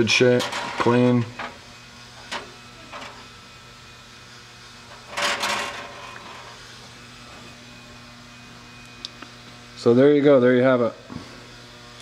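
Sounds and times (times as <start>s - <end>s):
steady low hum: 0.0s - 12.0s
rustling scrape: 5.0s - 6.6s.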